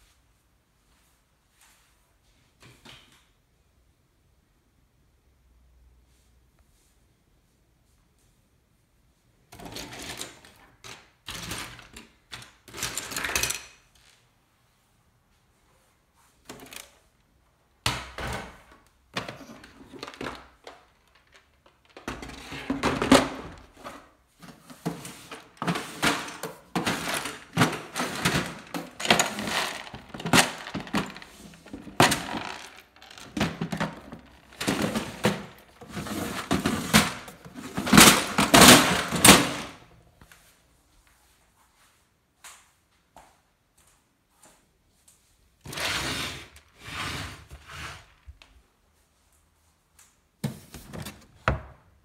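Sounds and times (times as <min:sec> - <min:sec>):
plastic bricks clattering: 0:24.9 - 0:39.8.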